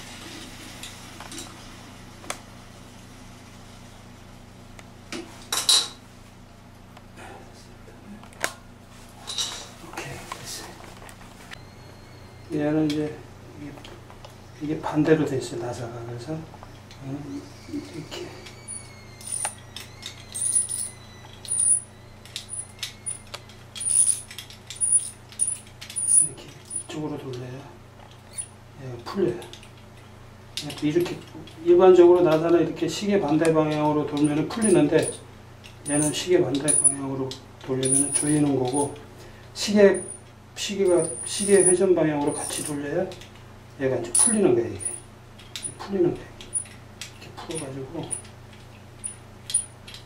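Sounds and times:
steady low hum: 0.3s - 50.0s.

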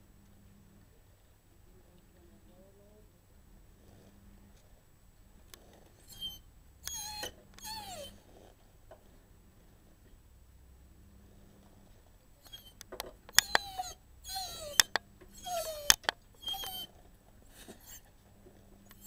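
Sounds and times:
dog whimpering: 6.0s - 8.2s, 12.4s - 16.9s, 17.7s - 18.1s
sharp clicks: 12.7s - 13.8s, 14.8s - 15.1s, 15.7s - 16.8s.

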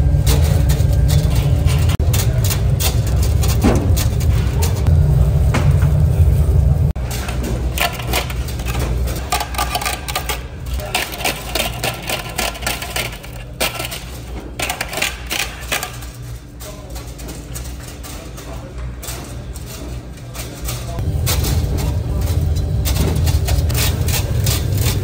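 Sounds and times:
loud low rumble: 0.0s - 9.0s
low steady hum: 0.0s - 25.0s
metal utensils clattering: 0.1s - 4.9s, 7.0s - 25.0s.

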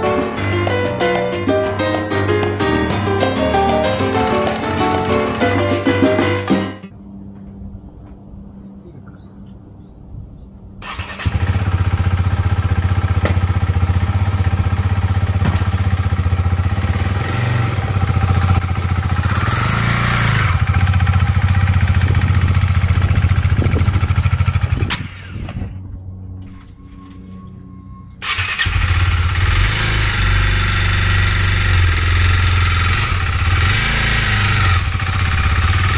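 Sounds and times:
motorcycle engine idling and revving: 10.8s - 27.2s, 28.2s - 35.9s.

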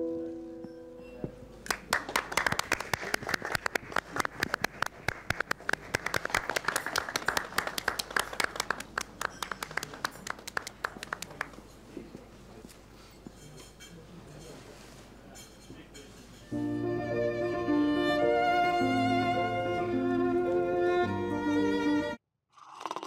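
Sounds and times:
audience applauding: 1.6s - 11.7s.

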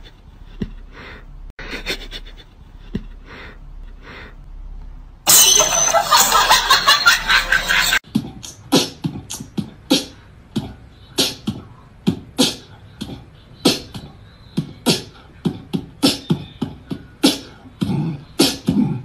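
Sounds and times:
beatbox percussion: 8.0s - 19.0s.

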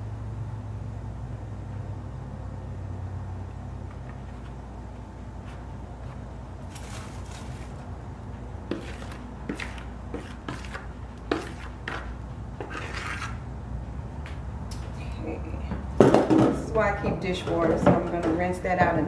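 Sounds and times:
steady low hum: 0.0s - 19.0s
spoon scraping batter from bowl: 8.7s - 13.4s.

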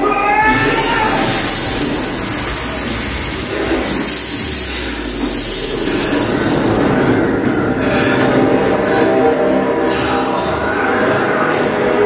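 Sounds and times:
dense rushing noise from speakers: 0.0s - 9.2s
low rumble: 0.0s - 10.5s.

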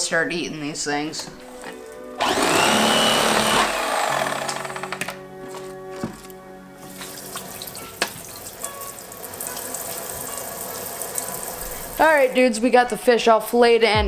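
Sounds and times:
background music: 0.0s - 14.0s
water running from faucet: 6.8s - 12.4s.

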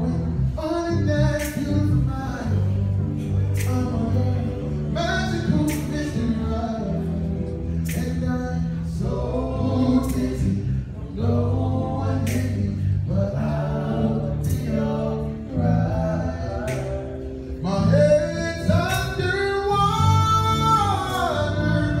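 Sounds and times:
vocal group singing gospel harmony: 0.0s - 22.0s.

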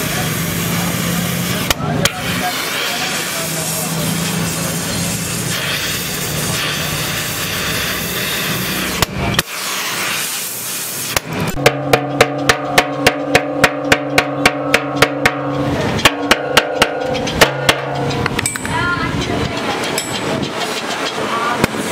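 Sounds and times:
gas welding torch hissing: 0.0s - 11.6s
steady hum: 10.8s - 21.9s
hammer tapping on metal: 11.6s - 21.2s.

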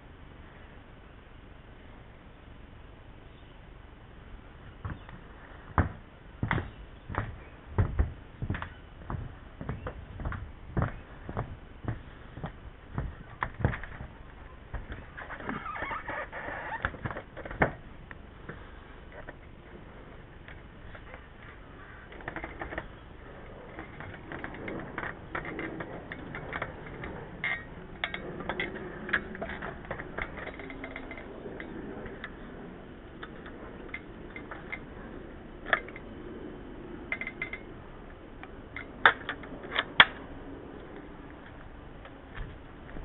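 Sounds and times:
aluminium ladder knocks and clinks: 4.8s - 17.9s, 20.5s - 32.4s, 37.1s - 37.7s
ladder clanks: 5.8s - 17.8s, 22.2s - 32.2s.

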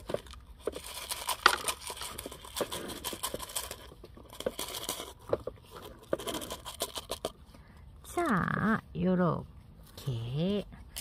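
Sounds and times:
pebbles rattling and clicking: 0.0s - 7.4s.

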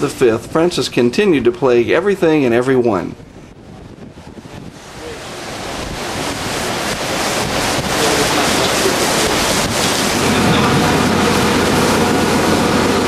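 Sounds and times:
wind on microphone: 0.0s - 13.0s
rain rushing: 3.2s - 13.0s.

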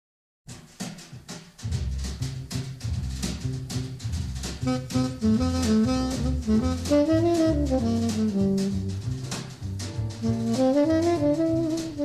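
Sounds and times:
drum kit: 0.5s - 12.0s
walking bass: 1.6s - 12.0s
saxophone melody: 4.6s - 12.0s.

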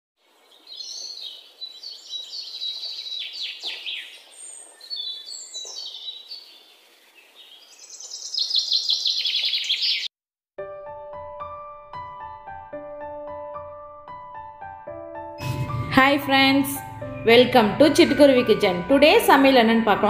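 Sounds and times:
songbird singing: 0.2s - 10.1s.

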